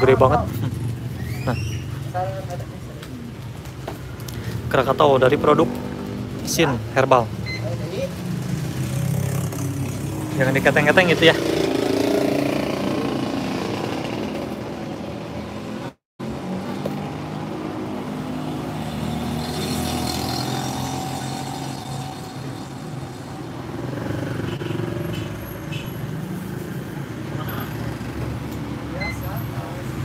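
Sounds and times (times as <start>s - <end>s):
background traffic: 0.0s - 30.0s.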